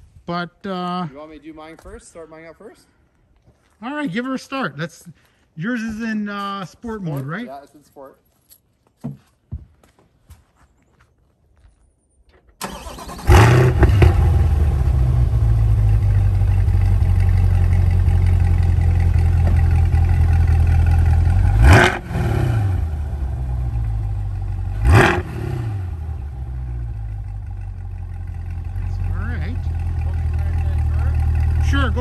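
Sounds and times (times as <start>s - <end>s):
engine revving: 12.6s - 32.0s
sports car engine starting and idling: 12.6s - 32.0s.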